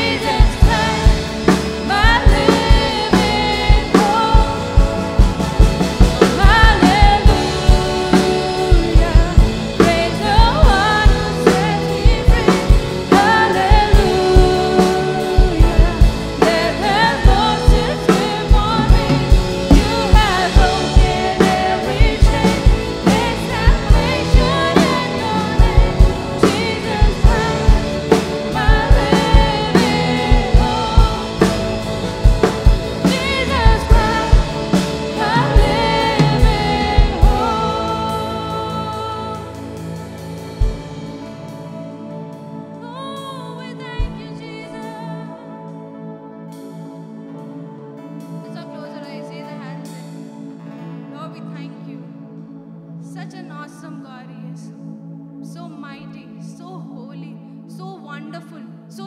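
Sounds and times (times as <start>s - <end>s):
drum kit beat: 0.0s - 41.5s
singers with band: 0.0s - 41.9s.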